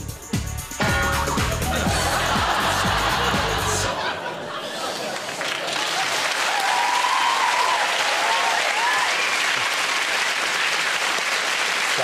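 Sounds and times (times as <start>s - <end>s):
audience applauding: 1.4s - 12.0s
voices cheering: 5.8s - 9.6s.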